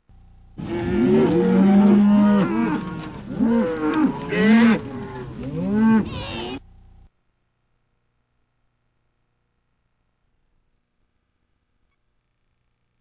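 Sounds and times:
cattle mooing: 0.6s - 6.6s.

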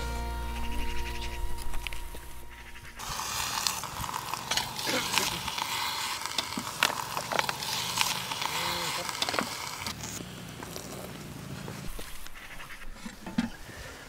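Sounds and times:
music: 0.0s - 3.0s
sharp crackles: 0.5s - 12.9s
hot stones hissing and sizzling: 1.2s - 13.0s.

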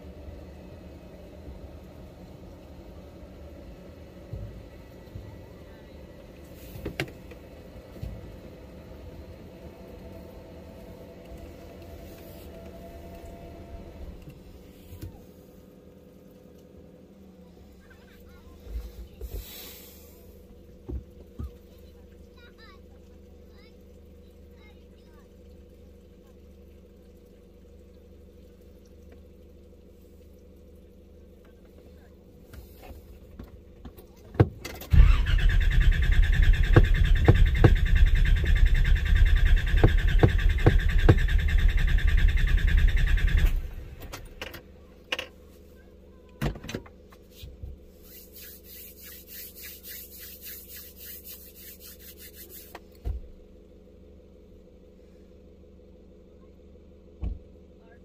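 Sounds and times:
starter motor cranking engine: 34.6s - 44.6s.

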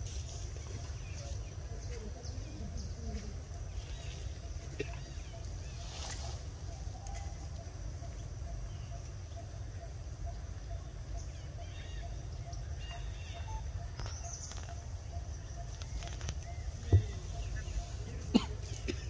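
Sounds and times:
faint bird chirps: 0.3s - 19.0s.

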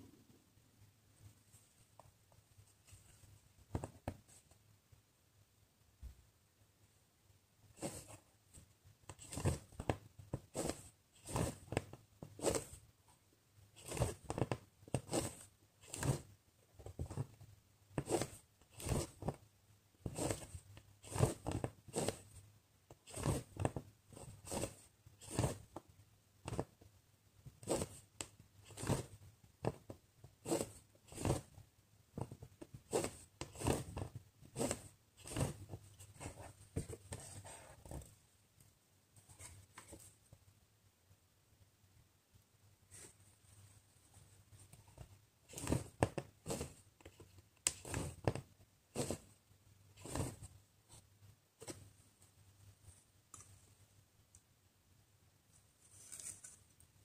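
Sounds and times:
needle and thread rasping through fabric: 7.7s - 12.9s, 13.7s - 19.4s, 20.0s - 26.8s, 27.5s - 31.6s, 32.2s - 38.2s, 44.1s - 51.9s, 55.8s - 56.8s.

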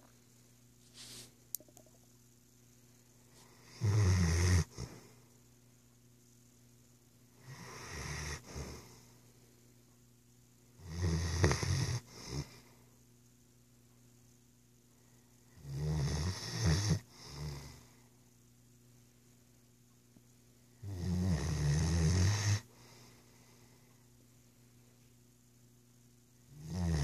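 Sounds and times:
dog snoring: 3.4s - 5.0s, 7.4s - 9.0s, 10.8s - 12.7s, 15.5s - 17.9s, 20.8s - 23.1s, 26.5s - 27.0s.

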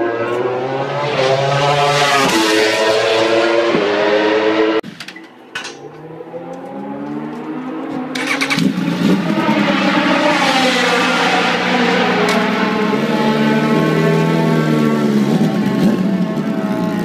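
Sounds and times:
motorcycle passing at speed: 0.0s - 4.8s, 5.9s - 17.0s
motorcycle engine starting and revving: 0.0s - 17.0s
starter whine: 7.0s - 9.5s.

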